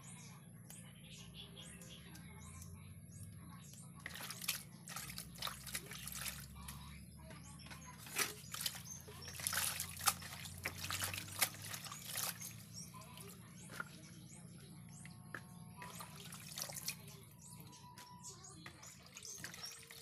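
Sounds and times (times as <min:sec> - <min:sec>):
water splashing and dripping: 0:04.0 - 0:06.8, 0:07.6 - 0:14.0, 0:15.3 - 0:17.6, 0:18.6 - 0:20.0
hands swishing leaves in water: 0:04.1 - 0:06.5, 0:07.9 - 0:12.8.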